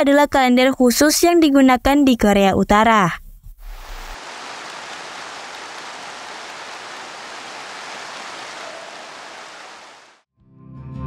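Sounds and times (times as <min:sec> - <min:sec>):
audience applauding: 0:04.2 - 0:10.2.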